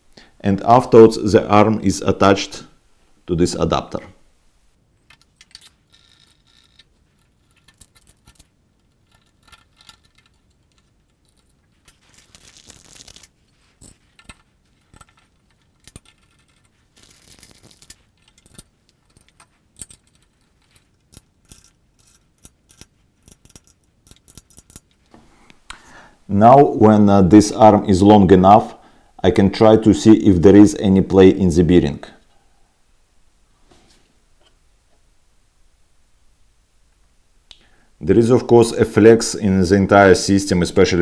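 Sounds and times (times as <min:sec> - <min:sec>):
parts scraping: 0:05.0 - 0:25.9
small metallic clinks: 0:18.2 - 0:25.0.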